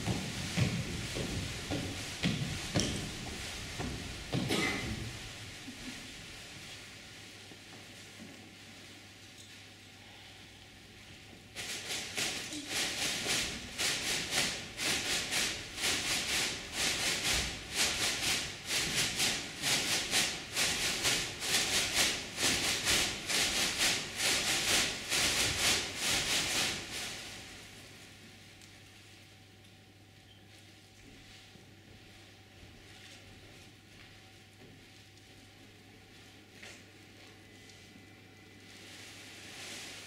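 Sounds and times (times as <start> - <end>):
rhythmic hissing swishes: 11.6 - 27.8.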